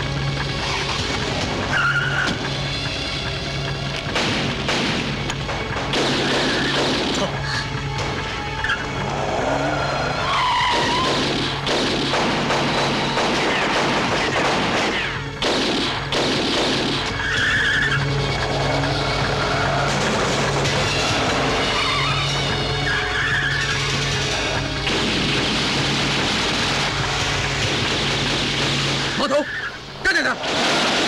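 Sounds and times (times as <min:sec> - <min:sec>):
car engine running: 0:00.0 - 0:06.0, 0:16.8 - 0:29.2
film score music: 0:00.0 - 0:31.0
car tyres squealing: 0:00.6 - 0:02.6, 0:08.5 - 0:11.2, 0:17.2 - 0:24.6, 0:29.1 - 0:30.0.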